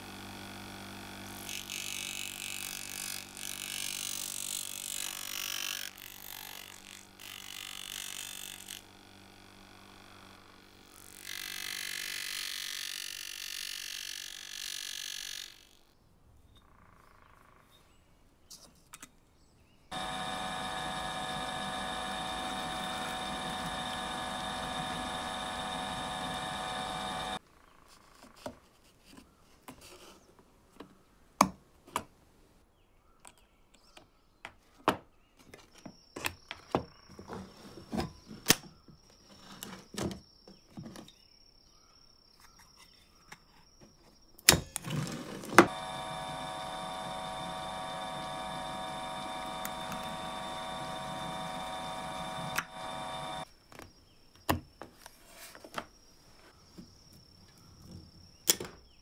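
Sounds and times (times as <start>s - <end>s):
drill press motor humming: 0.0s - 1.8s, 19.9s - 27.4s, 45.6s - 53.5s.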